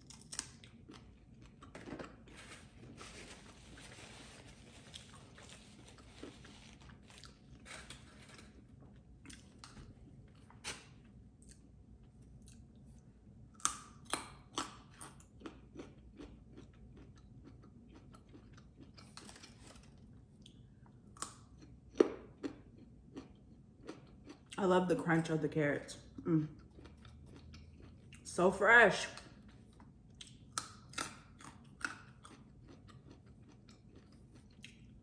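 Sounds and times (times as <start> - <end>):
crunching carrot bites: 0.0 - 3.0, 29.1 - 35.0
paper napkin rustling: 2.3 - 8.5.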